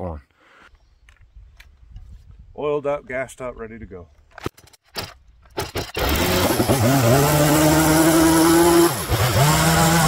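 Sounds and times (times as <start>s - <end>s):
chainsaw starter clicks: 4.5s - 7.0s
chainsaw engine running: 5.8s - 10.0s.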